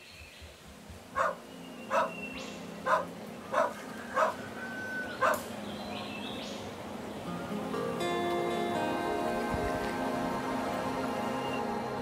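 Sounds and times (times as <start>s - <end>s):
faint steady hum: 0.0s - 12.0s
dog barking: 1.2s - 2.2s, 2.8s - 4.4s, 5.2s - 5.4s.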